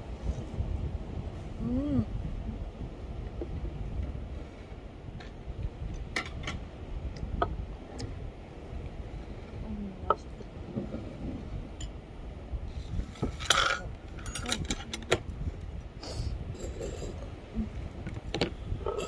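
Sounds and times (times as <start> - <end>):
utensils and dishes clinking: 13.4 - 15.0.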